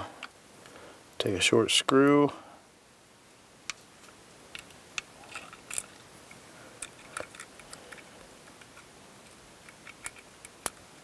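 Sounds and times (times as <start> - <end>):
small metal parts clicking: 4.5 - 11.0.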